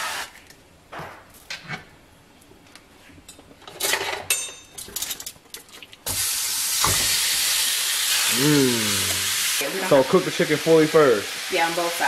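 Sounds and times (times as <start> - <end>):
kitchenware knocks and clinks: 3.7 - 5.2.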